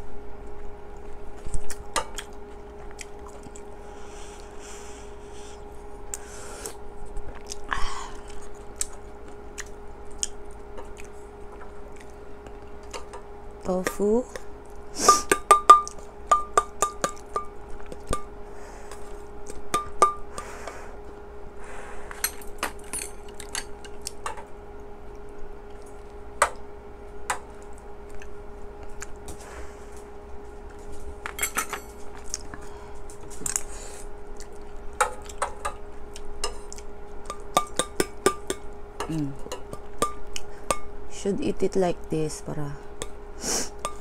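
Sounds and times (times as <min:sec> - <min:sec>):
faint hum: 0:00.0 - 0:44.0
metal utensils clinking on bowls: 0:31.3 - 0:32.0.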